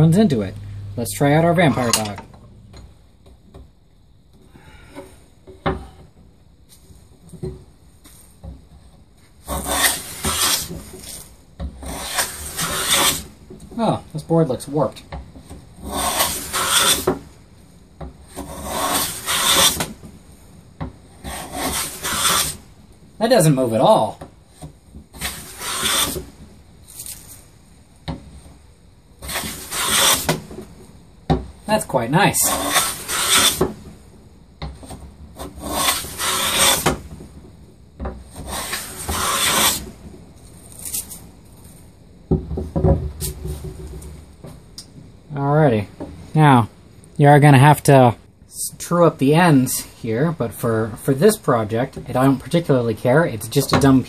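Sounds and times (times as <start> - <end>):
hand plane cutting wood: 9.5 - 11.2, 11.8 - 13.3, 15.8 - 17.2, 18.3 - 19.9, 21.2 - 22.6, 25.2 - 26.3, 29.2 - 30.4, 32.4 - 33.8, 35.4 - 37.0, 38.3 - 39.9.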